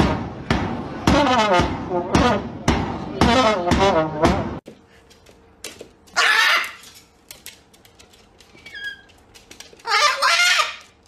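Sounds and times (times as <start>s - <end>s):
cockatoo screeching: 6.2s - 6.8s, 9.8s - 11.0s.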